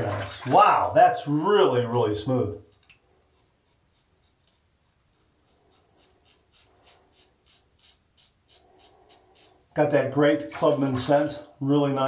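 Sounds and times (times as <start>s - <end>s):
razor scraping stubble: 2.7s - 9.8s.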